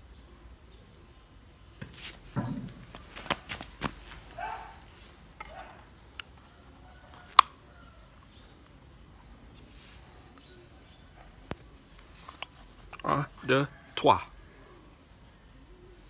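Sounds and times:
coconut shell cracking: 7.1s - 7.6s.

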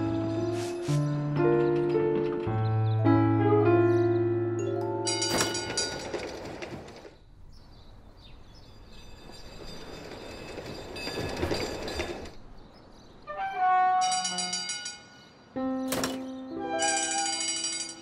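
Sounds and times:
tram rumbling on rails: 5.0s - 15.1s.

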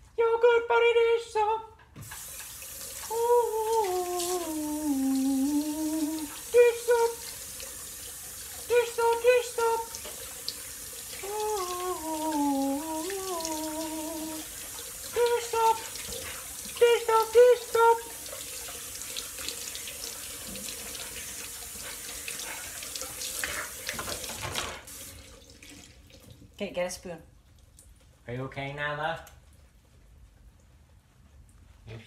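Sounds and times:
tap running: 2.0s - 26.4s
person humming and singing: 3.1s - 7.2s, 11.2s - 14.5s, 15.2s - 15.8s.

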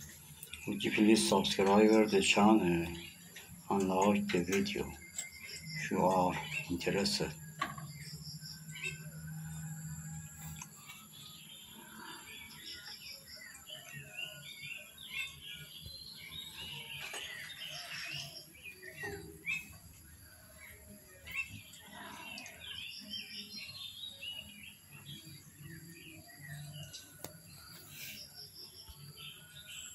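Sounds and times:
small birds chirping: 0.0s - 29.9s.

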